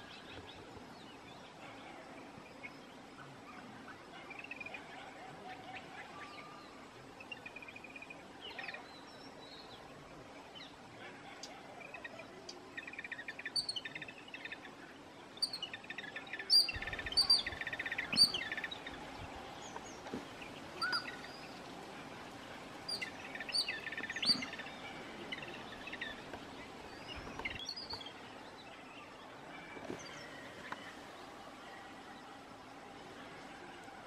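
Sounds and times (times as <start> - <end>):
birds chattering harshly: 15.7 - 31.0.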